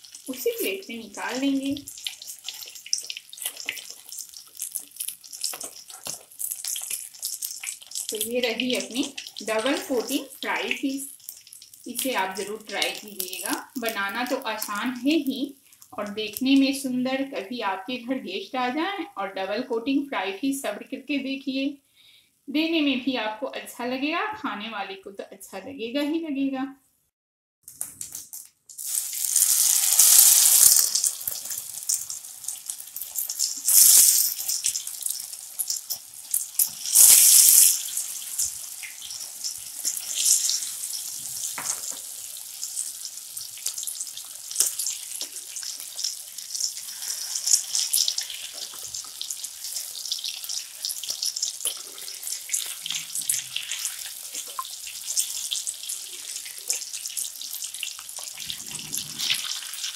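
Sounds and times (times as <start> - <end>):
fish deep-frying in hot oil: 0.0 - 16.9, 27.8 - 59.9.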